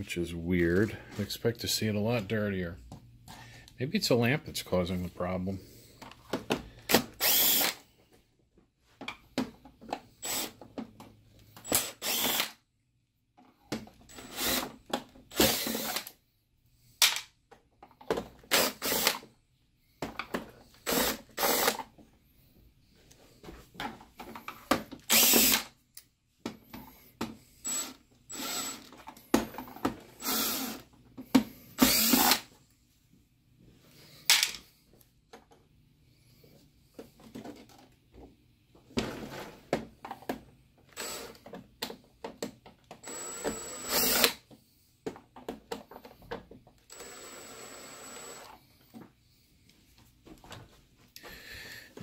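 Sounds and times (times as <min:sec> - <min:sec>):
cordless electric screwdriver spinning: 0:07.2 - 0:07.8, 0:11.6 - 0:12.6, 0:14.1 - 0:14.7, 0:18.5 - 0:19.2, 0:20.9 - 0:21.8, 0:25.1 - 0:25.7, 0:27.6 - 0:28.9, 0:31.8 - 0:32.5, 0:43.0 - 0:44.4.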